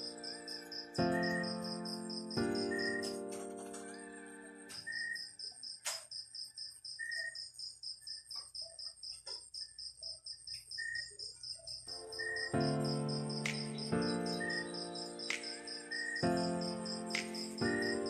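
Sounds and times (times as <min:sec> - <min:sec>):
high insect tone: 0:00.0 - 0:03.3, 0:04.7 - 0:18.0
electronic keyboard notes: 0:00.0 - 0:04.9, 0:11.9 - 0:18.0
cricket chirping: 0:00.0 - 0:18.0.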